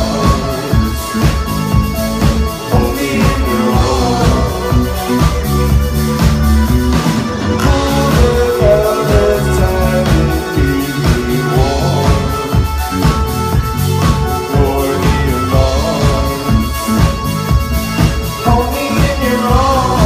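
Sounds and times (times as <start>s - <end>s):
drums on a steady beat: 0.0s - 20.0s
keyboards: 0.0s - 20.0s
women singing: 2.7s - 5.0s.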